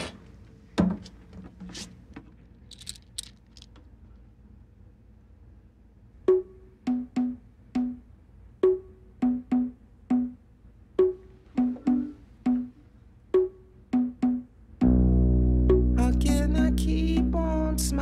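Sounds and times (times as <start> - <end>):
hand drums rhythm: 6.3 - 8.0, 8.6 - 10.3, 11.0 - 12.7, 13.4 - 14.4.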